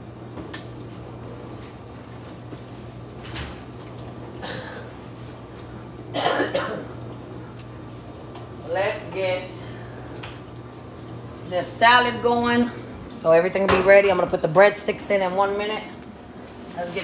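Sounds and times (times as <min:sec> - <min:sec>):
steady low hum: 0:00.0 - 0:17.0
person coughing: 0:04.4 - 0:04.9, 0:06.1 - 0:07.0.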